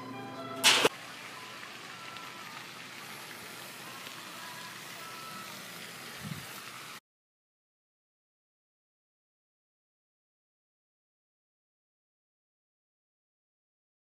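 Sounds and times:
sharp click: 0.6s - 0.9s.

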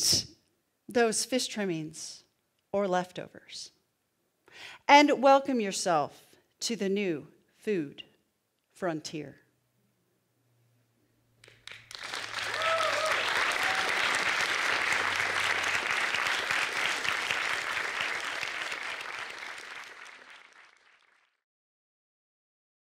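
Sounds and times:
audience applauding: 11.4s - 21.4s
person whooping: 12.4s - 14.3s.

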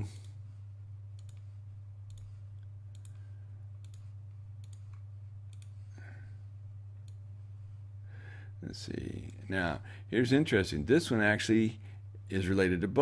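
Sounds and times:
steady low hum: 0.0s - 13.0s
computer mouse clicking: 1.2s - 1.5s, 2.1s - 3.2s, 3.8s - 5.8s.

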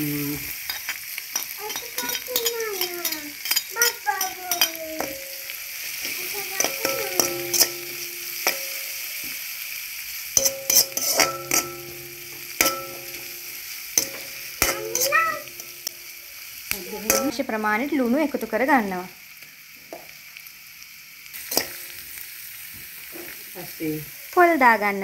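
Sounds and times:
food sizzling in hot oil: 0.0s - 25.0s
metal spoon knocking wok: 1.4s - 9.4s, 10.4s - 16.1s, 16.7s - 17.6s, 21.5s - 22.0s.

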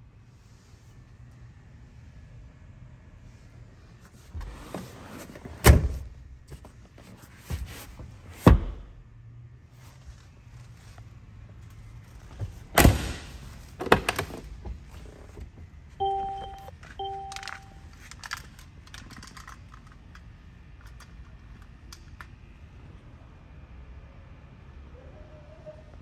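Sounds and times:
car warning chime: 16.0s - 17.9s.

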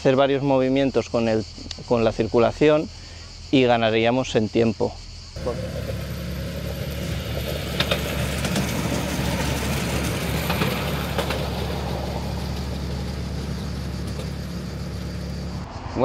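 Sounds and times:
engine idling: 5.4s - 15.6s.

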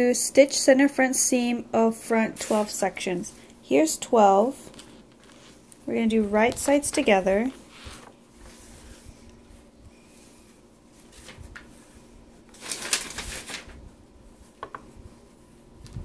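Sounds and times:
fabric rustling and sliding: 2.3s - 2.8s, 7.0s - 13.8s.

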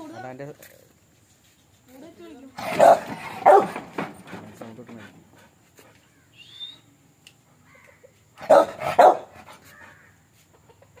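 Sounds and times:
dog barking: 2.6s - 3.9s, 8.4s - 9.4s.

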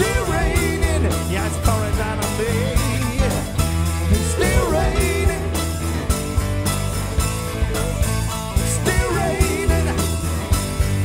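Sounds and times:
person singing lead vocal: 0.0s - 6.3s, 8.5s - 11.0s
rock band playing: 0.0s - 11.0s.

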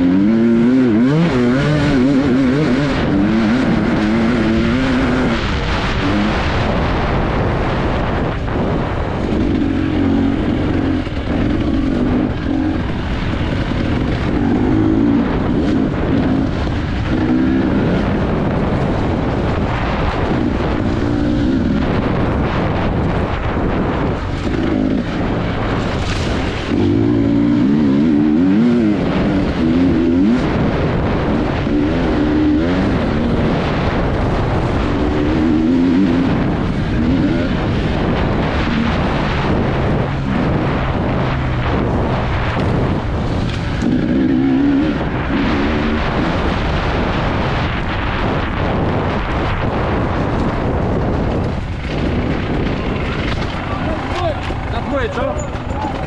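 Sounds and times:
motocross bike engine revving: 0.0s - 56.0s.

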